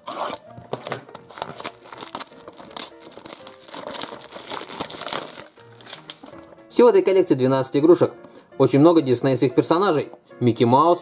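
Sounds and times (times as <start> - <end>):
plastic wrap crinkling and tearing: 0.0 - 6.6.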